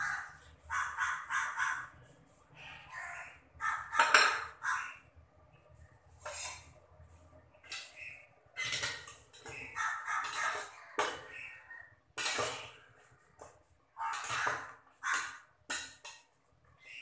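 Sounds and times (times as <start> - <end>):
utensils clattering against metal pot: 3.9 - 4.6, 7.6 - 11.4, 12.2 - 16.4.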